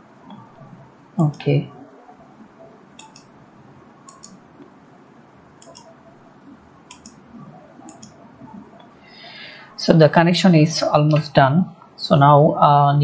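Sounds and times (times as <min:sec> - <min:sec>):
computer mouse clicking: 0:03.0 - 0:03.3, 0:04.0 - 0:04.7, 0:05.6 - 0:05.9, 0:06.9 - 0:07.2, 0:07.9 - 0:08.2.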